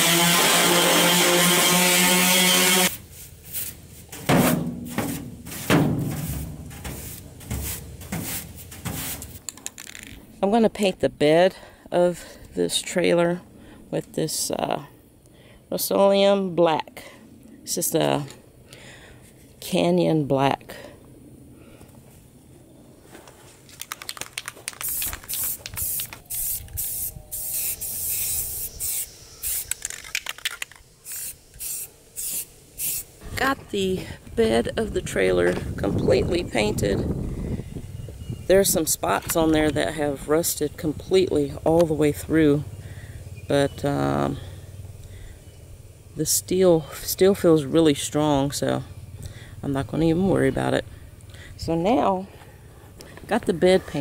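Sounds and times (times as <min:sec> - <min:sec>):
scrubber rasping on sheet steel: 0:00.0 - 0:09.4
spray paint can hissing: 0:06.2 - 0:09.4, 0:24.6 - 0:33.1.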